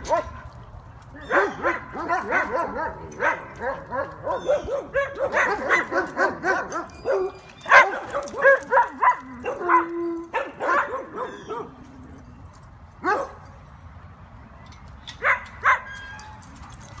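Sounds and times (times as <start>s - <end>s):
dogs barking: 0.0s - 0.5s, 1.2s - 11.8s, 13.0s - 13.5s, 15.2s - 15.9s.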